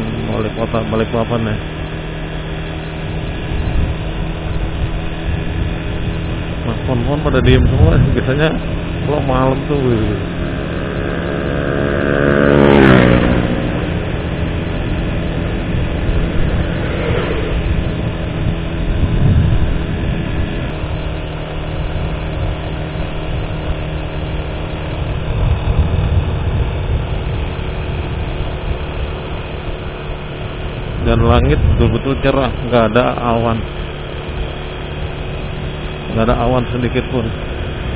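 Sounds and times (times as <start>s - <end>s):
vehicle engine and road rumble: 0.0s - 37.9s
car passing by: 16.2s - 18.0s.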